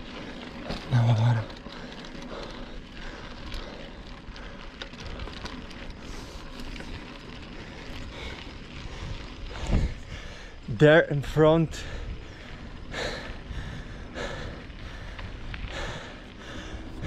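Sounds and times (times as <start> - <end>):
bicycle bump: 0.0 - 10.4
bicycle tyre noise: 0.0 - 17.0
wind on microphone: 8.8 - 10.4.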